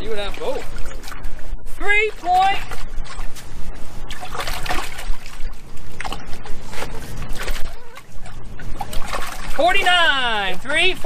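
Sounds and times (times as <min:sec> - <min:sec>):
water trickling and splashing: 0:00.0 - 0:11.0.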